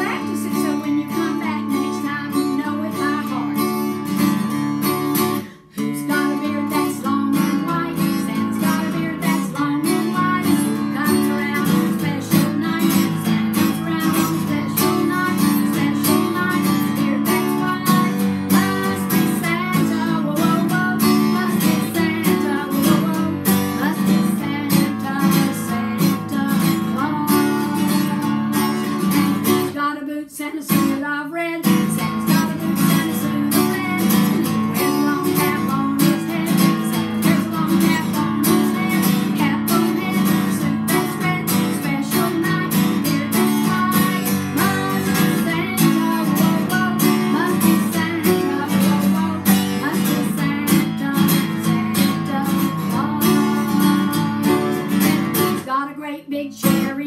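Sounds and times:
acoustic guitar strumming: 0.0 - 29.8, 31.6 - 55.7
woman singing: 0.0 - 57.0.

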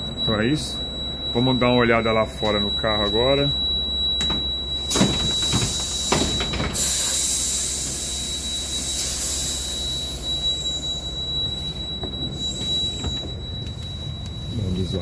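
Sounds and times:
steady high whine: 0.0 - 15.0
compressed air hissing: 5.7 - 9.8.

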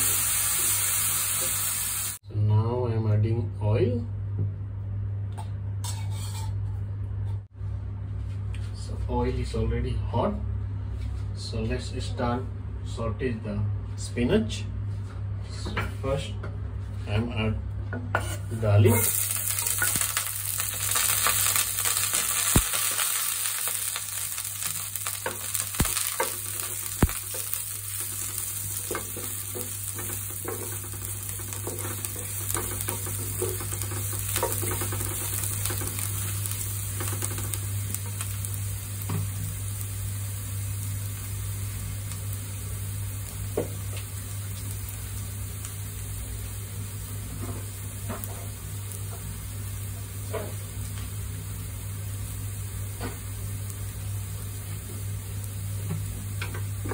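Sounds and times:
garlic sizzling in hot oil: 0.0 - 2.2, 18.3 - 56.9
spatula stirring and clicking on pan: 25.0 - 36.2.

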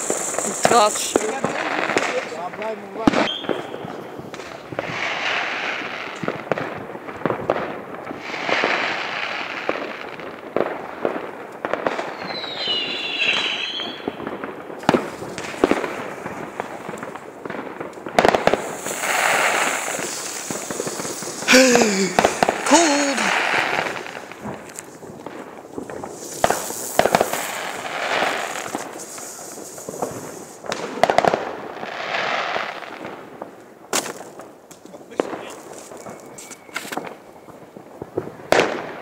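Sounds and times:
fireworks banging: 0.0 - 39.0
fireworks crackling: 0.0 - 39.0
firework whistle bending: 3.2 - 3.8, 12.2 - 14.1.

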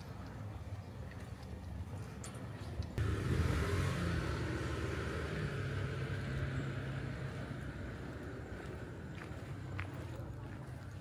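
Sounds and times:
motor vehicle passing: 3.0 - 10.5.

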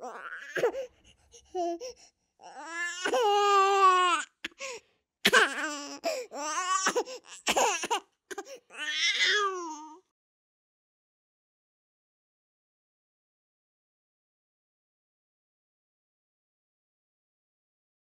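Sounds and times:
newborn baby crying: 0.0 - 0.9, 1.5 - 10.0.

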